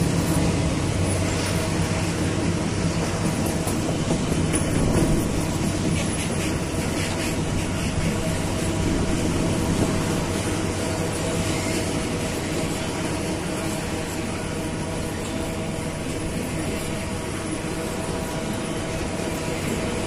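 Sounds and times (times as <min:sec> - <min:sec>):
freight train rumbling past: 0:00.0 - 0:20.0.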